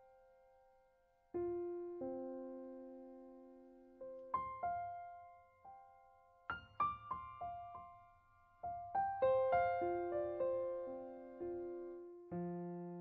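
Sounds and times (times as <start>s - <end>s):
piano music: 6.5s - 13.0s.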